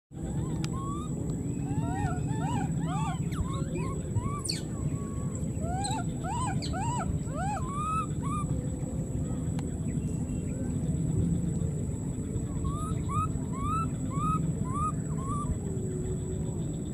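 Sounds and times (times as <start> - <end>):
steady low rumble: 0.2 - 16.9
baby monkey crying: 0.3 - 8.5.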